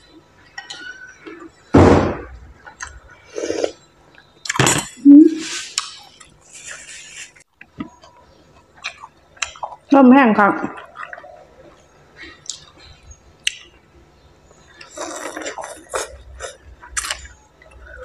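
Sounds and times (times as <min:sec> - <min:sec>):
eating and sipping: 0:02.6 - 0:09.9, 0:10.6 - 0:13.8, 0:14.5 - 0:18.0.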